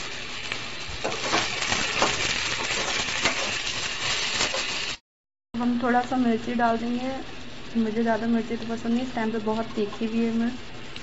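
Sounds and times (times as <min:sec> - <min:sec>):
vegetables sizzling in oil: 0:00.0 - 0:05.0, 0:05.6 - 0:11.0
spatula scraping pan: 0:01.0 - 0:04.8.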